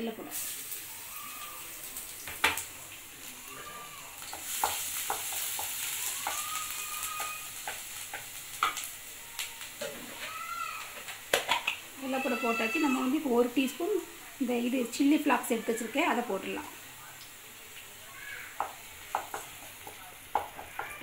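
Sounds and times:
garlic sizzling in hot oil: 0.0 - 21.0
spatula knocking against pan: 18.6 - 21.0.

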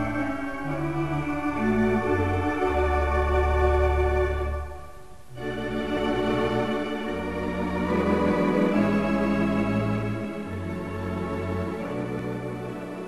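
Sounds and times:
music of slow sustained chords: 0.0 - 13.0.

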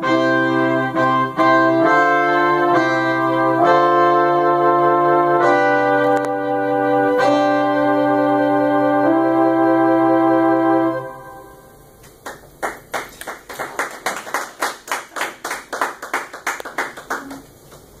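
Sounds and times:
electronic keyboard chord: 0.0 - 11.8
small group clapping: 12.0 - 18.0.

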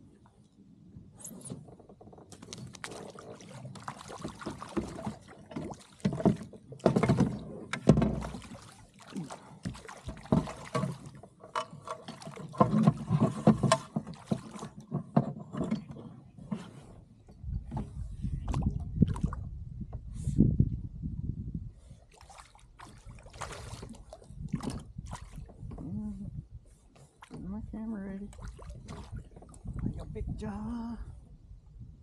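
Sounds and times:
water splashing: 2.3 - 14.8, 18.5 - 19.5, 22.1 - 25.7, 27.2 - 30.2.

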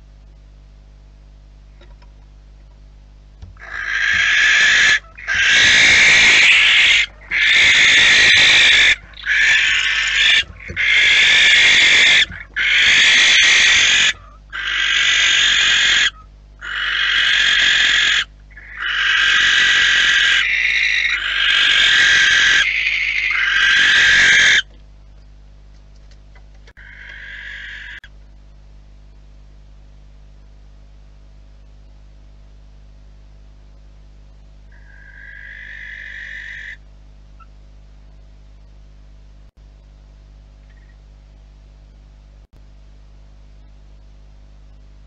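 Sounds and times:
barn owls screeching: 3.5 - 24.7, 26.7 - 28.1, 34.7 - 36.8.

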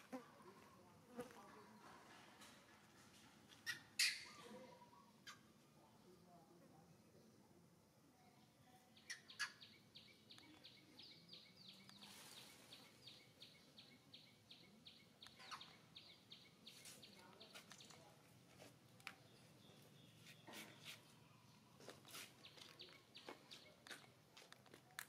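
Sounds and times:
faint high-pitched chirping: 3.5 - 18.2.

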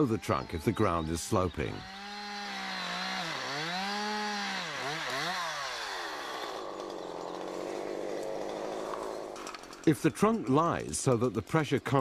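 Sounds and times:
chainsaw cutting wood: 1.8 - 9.9.

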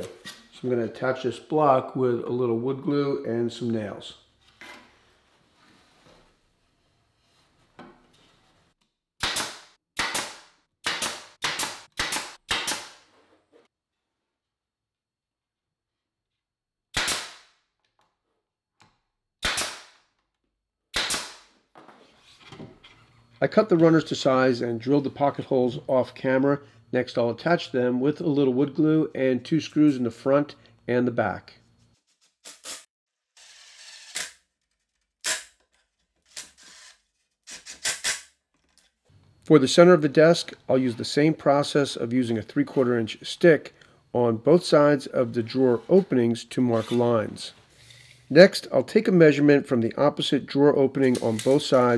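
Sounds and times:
pneumatic nailer firing: 9.2 - 13.1, 16.9 - 17.4, 19.4 - 20.0, 20.9 - 21.4, 35.2 - 35.6, 37.5 - 38.3.

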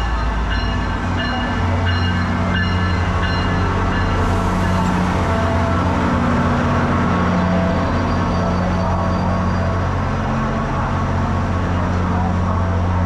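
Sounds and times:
bell ringing: 0.0 - 4.9
train running with low drone: 0.0 - 13.0.

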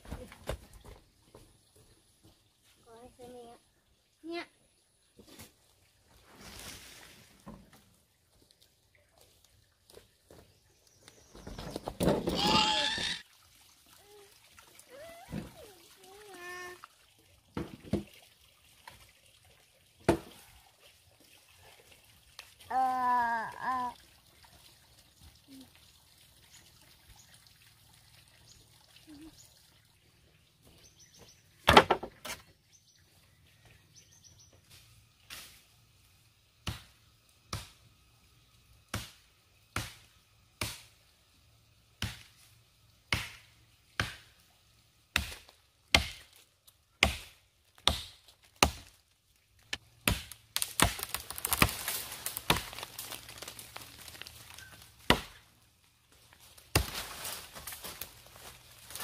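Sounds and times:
rustling crackling noise: 50.7 - 55.0.

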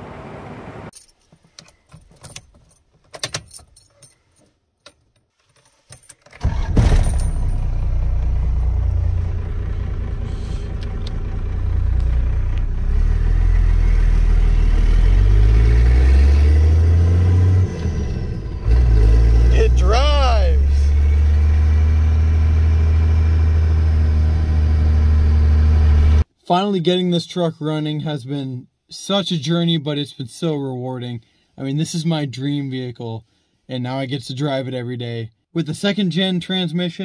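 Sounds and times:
keys jingling in ignition: 0.9 - 6.3, 7.0 - 7.6
diesel engine starting and droning: 6.4 - 26.3.

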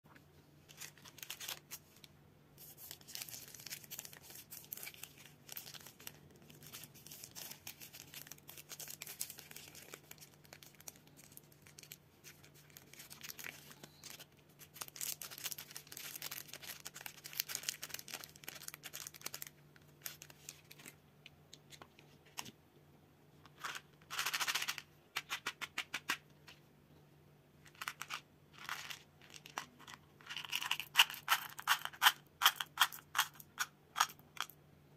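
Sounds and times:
plastic wrapper crinkling: 0.7 - 21.0
wrapper tearing: 2.7 - 21.0.

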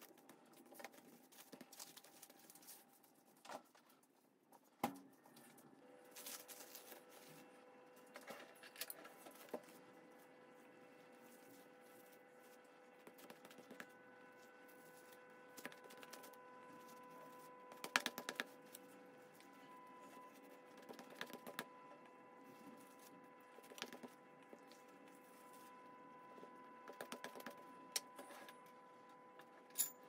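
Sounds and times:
hands working dough: 6.1 - 28.7.

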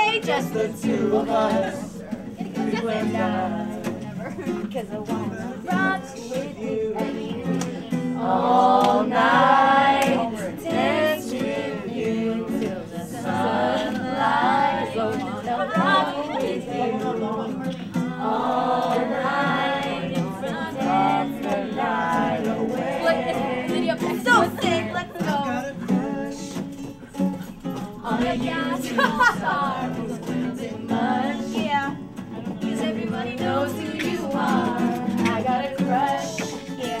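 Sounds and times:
acoustic guitars playing: 0.0 - 37.0
group of people singing: 0.0 - 37.0.

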